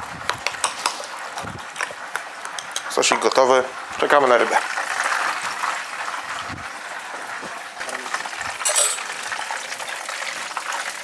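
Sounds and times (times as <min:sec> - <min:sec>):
fish deep-frying in oil: 0:00.0 - 0:11.0
metallic clink: 0:08.7 - 0:09.1.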